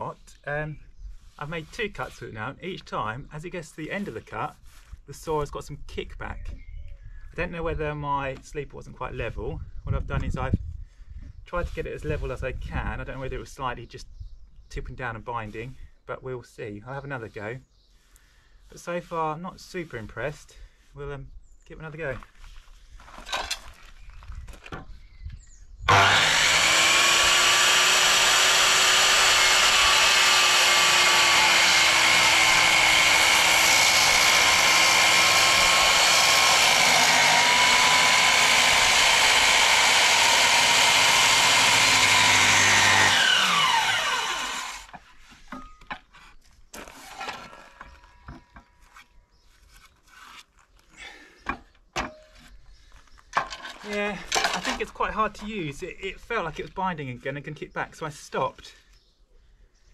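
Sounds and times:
saw spinning down whine: 0:25.9 - 0:44.9
circular saw cutting timber: 0:25.9 - 0:45.2.

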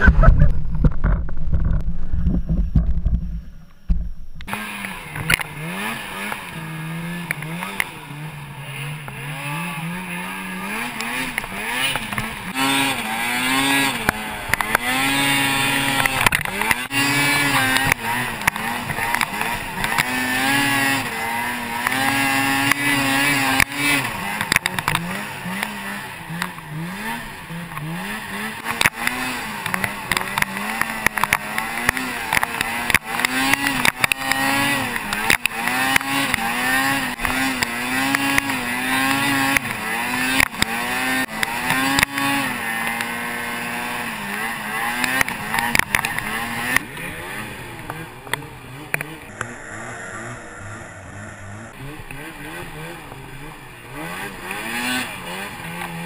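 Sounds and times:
loud low rumble: 0:00.0 - 0:04.5
snowmobile engine revving: 0:00.0 - 0:56.0.

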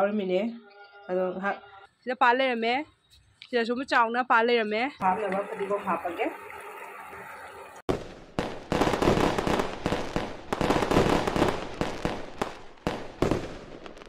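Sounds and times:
fireworks bangs: 0:07.8 - 0:14.0
fireworks crackling: 0:07.8 - 0:14.0.

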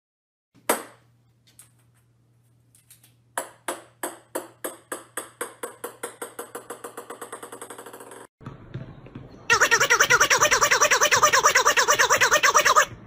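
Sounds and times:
ping-pong ball bouncing on floor: 0:03.4 - 0:08.2.

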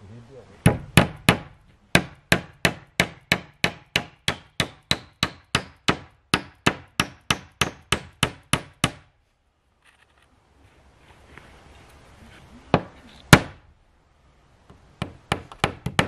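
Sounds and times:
hammer striking wooden boards: 0:00.6 - 0:09.1, 0:15.0 - 0:16.0.

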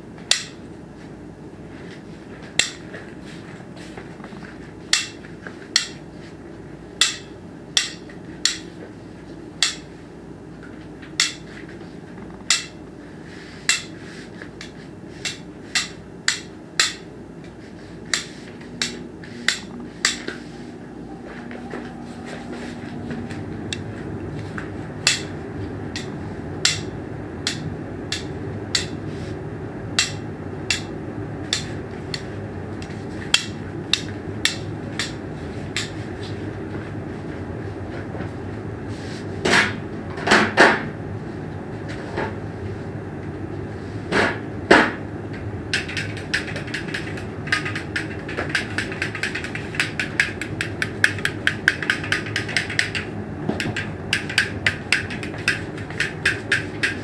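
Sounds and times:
steady low hum: 0:00.0 - 0:57.0
sharp taps: 0:45.8 - 0:57.0.

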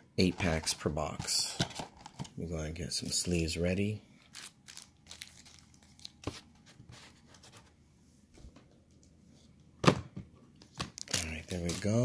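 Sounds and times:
card packaging rustling: 0:04.2 - 0:07.7, 0:10.8 - 0:12.0.

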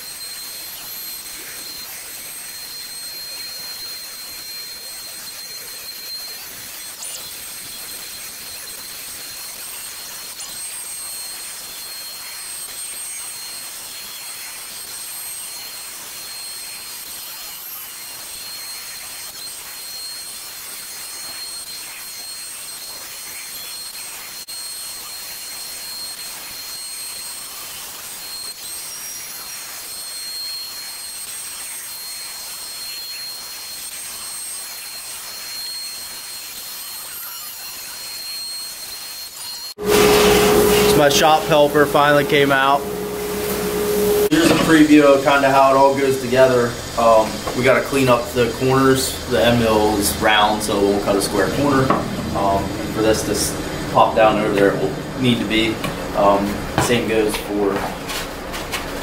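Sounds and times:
bit cutting wood hiss: 0:00.0 - 0:58.9
router spindle whine: 0:00.0 - 0:59.0.

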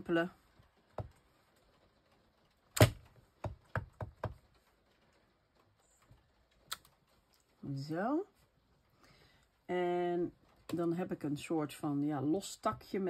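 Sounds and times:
stamp block knocking on mat: 0:02.8 - 0:04.4.

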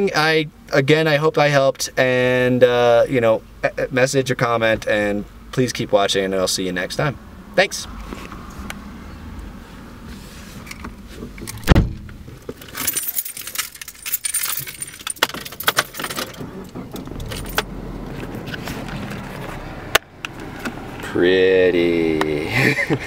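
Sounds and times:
car keys jangling: 0:10.6 - 0:19.4
handling knocks and clicks: 0:10.6 - 0:21.1
heavy thump: 0:11.6 - 0:12.2.

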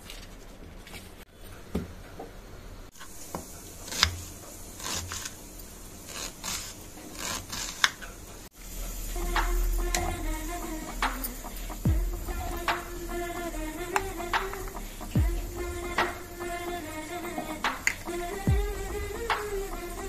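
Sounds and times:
sharp cutting or scraping strokes: 0:06.0 - 0:08.1.

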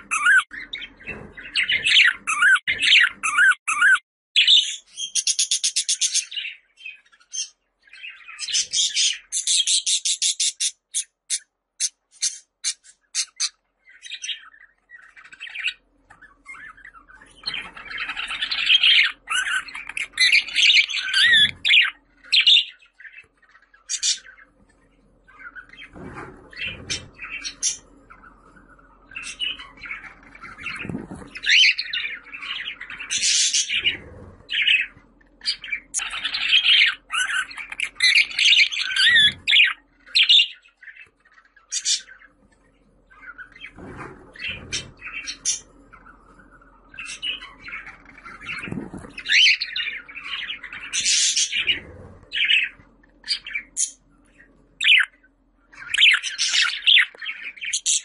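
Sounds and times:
budgerigar warbling and chattering: 0:00.0 - 0:06.6, 0:16.4 - 0:23.2, 0:29.1 - 0:41.0, 0:46.9 - 0:54.0, 0:54.8 - 0:55.1, 0:55.8 - 0:58.0.

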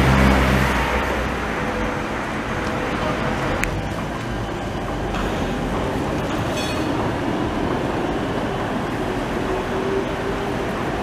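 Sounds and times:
trams rumbling on track: 0:00.0 - 0:11.0
high-pitched tram squeal: 0:06.3 - 0:07.1.

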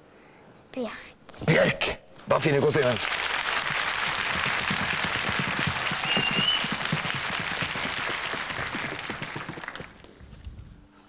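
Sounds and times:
studio audience applauding: 0:02.5 - 0:10.1
short high whistle: 0:06.0 - 0:06.8.

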